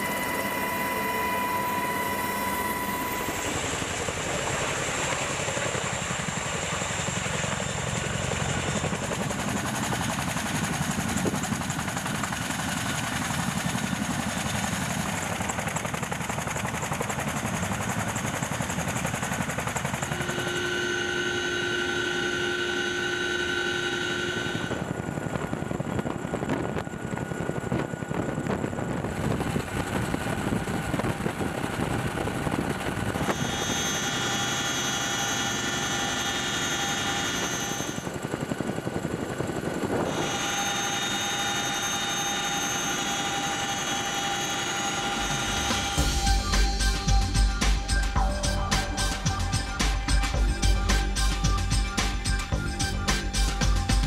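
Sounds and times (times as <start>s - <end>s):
high steady whine: 0.0s - 4.8s, 19.9s - 38.1s, 39.9s - 54.0s
helicopter hovering: 0.0s - 54.0s.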